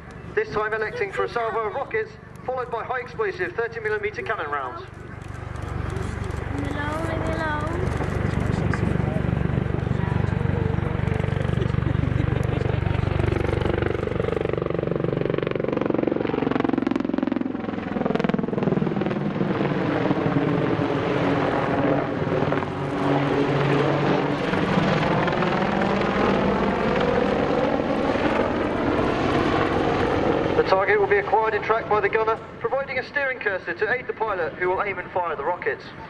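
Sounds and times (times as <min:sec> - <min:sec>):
helicopter flying overhead: 0:00.0 - 0:36.0.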